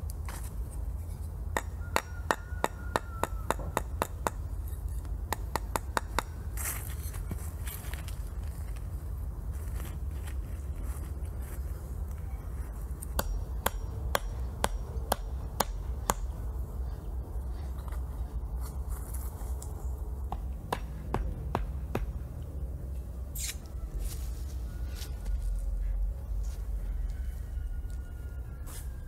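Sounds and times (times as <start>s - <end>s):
sharp rhythmic knocks: 20.3s - 22.2s.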